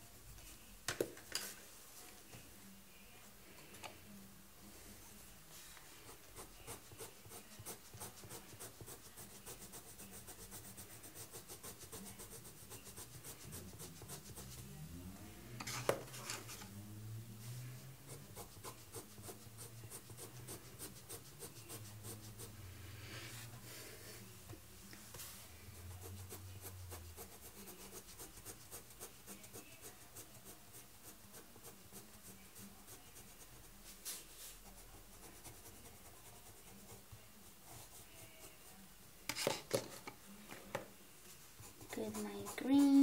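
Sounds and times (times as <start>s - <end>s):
pencil scratching on paper: 6.0s - 14.8s, 18.1s - 22.6s, 25.8s - 39.6s, 41.6s - 43.0s.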